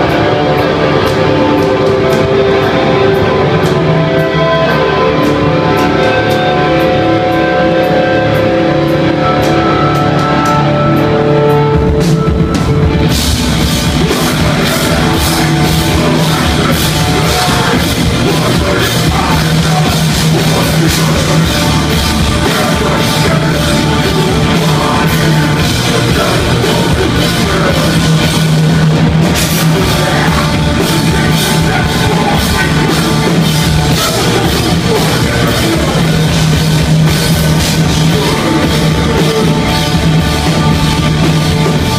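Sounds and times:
drums with crashing cymbals: 0.0 - 41.9
guitar riff: 0.0 - 41.9
rock band playing: 0.0 - 41.9.

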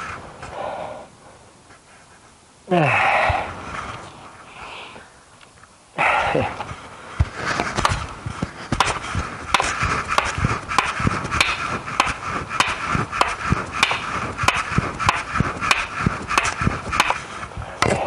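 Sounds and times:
constant background hiss: 0.0 - 18.0
sharp knocks: 7.2 - 18.0.

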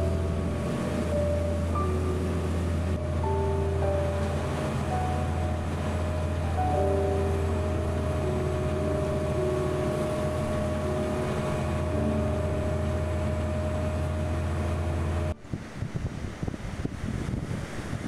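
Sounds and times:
long held tones: 0.0 - 15.4
boat engine droning: 0.0 - 18.0.

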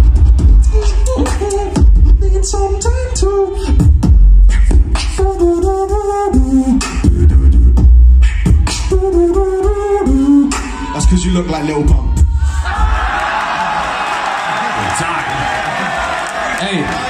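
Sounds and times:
beatboxing bass and clicks: 3.8 - 10.7.

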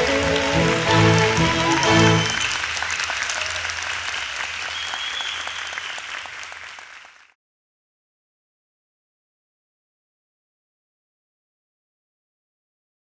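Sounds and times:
background music: 0.0 - 2.7
audience applauding: 0.0 - 7.4.

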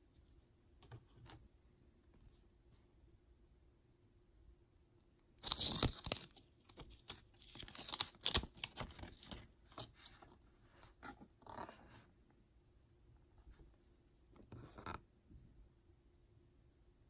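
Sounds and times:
paper rustling and crackling: 5.4 - 11.7.

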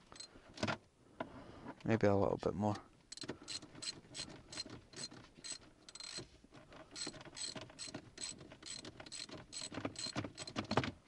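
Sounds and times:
socket ratchet clicking: 3.1 - 6.2, 6.9 - 10.8.

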